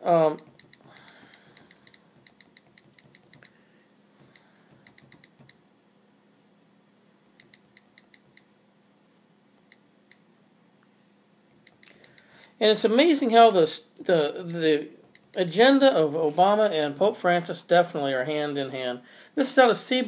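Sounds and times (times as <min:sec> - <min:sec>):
keyboard typing: 0:00.3 - 0:03.6, 0:04.2 - 0:05.6, 0:07.4 - 0:08.5.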